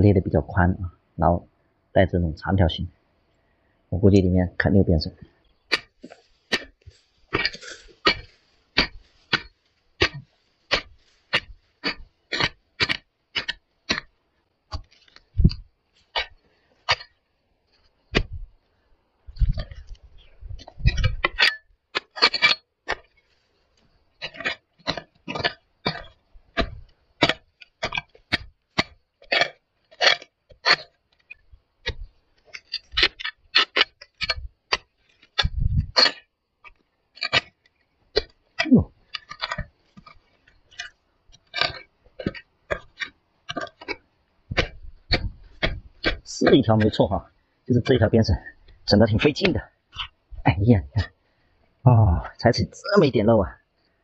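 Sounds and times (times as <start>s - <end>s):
hoe chopping into hard soil: 5.7s - 14.1s, 14.7s - 17.2s, 18.1s - 18.5s, 20.5s - 23.2s, 24.2s - 50.4s.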